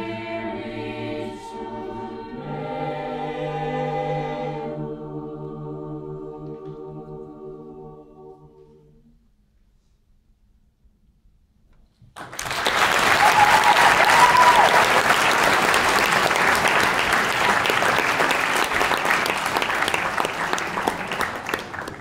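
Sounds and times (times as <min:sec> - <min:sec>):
audience applause: 0:12.2 - 0:22.0.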